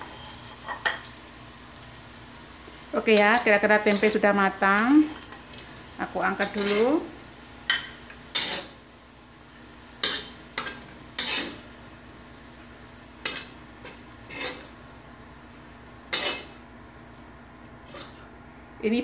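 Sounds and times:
oil sizzling: 0.0s - 19.0s
metal spatula scraping a wok: 6.3s - 7.1s, 7.7s - 8.8s, 10.0s - 11.8s, 13.2s - 14.8s, 16.1s - 16.6s, 17.8s - 18.4s.

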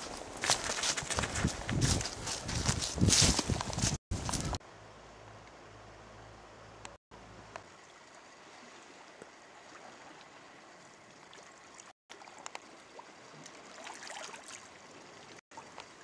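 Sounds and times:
water splashing: 8.4s - 15.4s.

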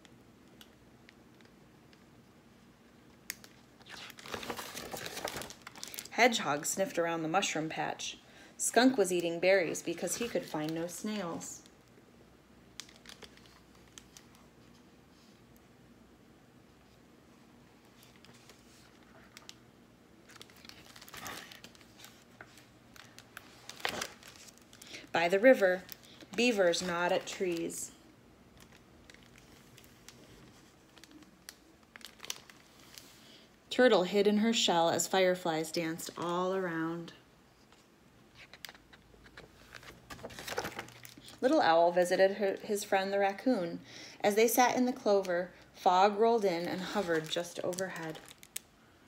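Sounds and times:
paper rustling and crinkling: 3.4s - 6.1s, 17.8s - 19.6s, 20.2s - 27.8s, 28.6s - 33.2s, 37.7s - 41.6s, 46.4s - 48.6s.

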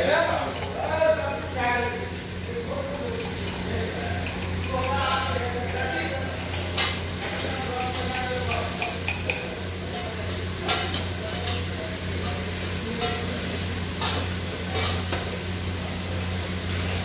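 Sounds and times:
meat sizzling in a pot: 0.0s - 17.0s
metal utensils clinking on plate: 0.1s - 0.9s, 3.0s - 5.1s, 5.7s - 11.8s, 13.0s - 13.3s, 14.0s - 15.3s.

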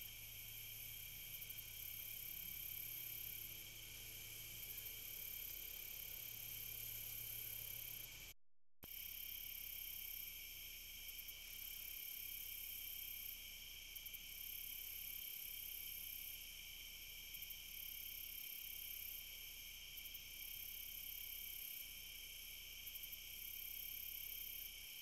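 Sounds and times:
high-pitched insect trill: 0.0s - 8.2s, 8.9s - 25.0s
insects chorus: 0.0s - 8.2s.

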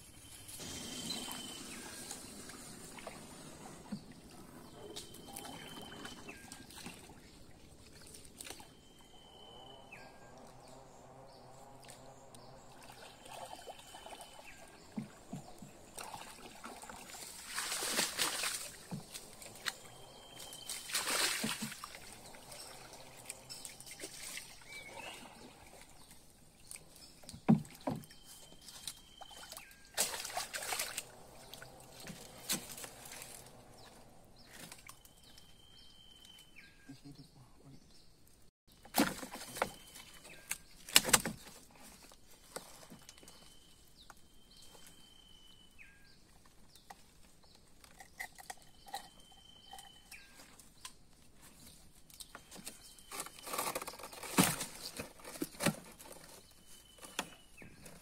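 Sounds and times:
water sloshing: 0.6s - 9.3s, 10.3s - 35.4s
sharp splashes: 15.9s - 19.8s, 20.5s - 25.8s, 29.3s - 33.5s.

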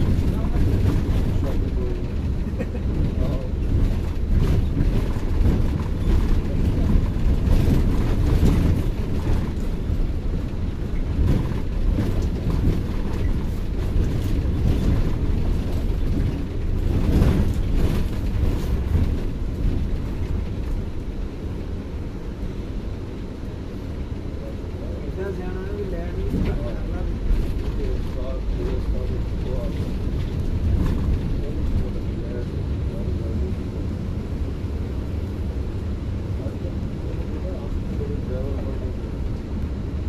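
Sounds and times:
coach engine and road rumble: 0.0s - 40.0s.

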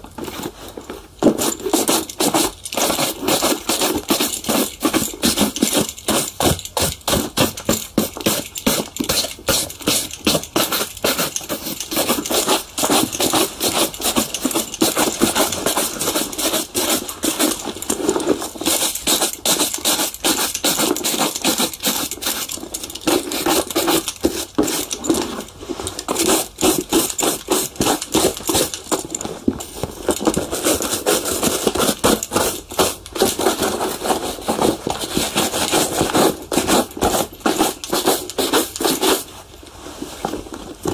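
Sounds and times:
brushing strokes on a shoe: 33.9s - 39.3s.

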